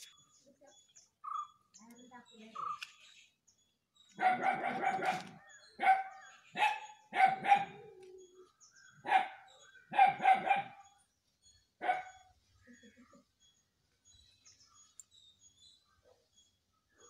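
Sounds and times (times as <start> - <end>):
dog barking: 4.2 - 7.8, 9.0 - 10.8, 11.8 - 12.3.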